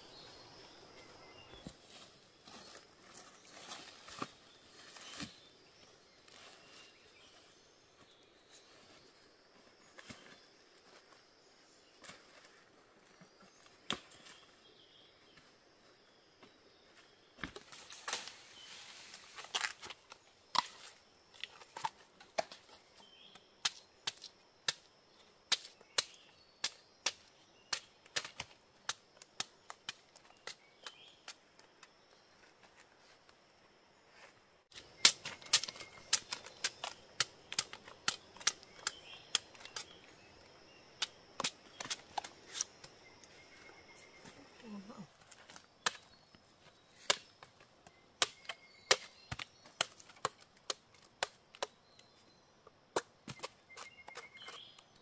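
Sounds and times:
husks and leaves rustling: 0.0 - 24.5, 25.2 - 52.4
knife chopping bamboo: 25.5 - 31.1, 34.7 - 40.0, 48.2 - 51.8.

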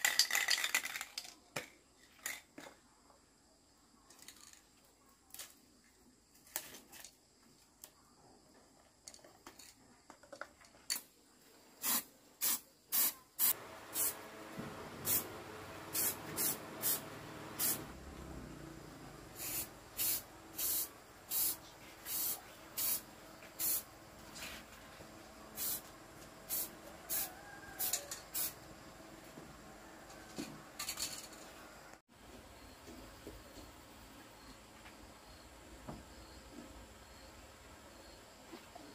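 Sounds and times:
aerosol spray can hissing: 11.8 - 14.3, 15.0 - 17.9, 19.4 - 23.9, 25.6 - 25.9, 26.5 - 28.6.

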